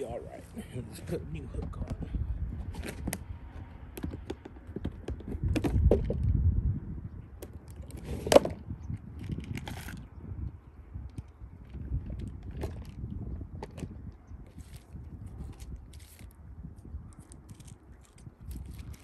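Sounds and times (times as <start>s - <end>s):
low microphone rumble: 0.0s - 3.8s, 5.0s - 19.0s.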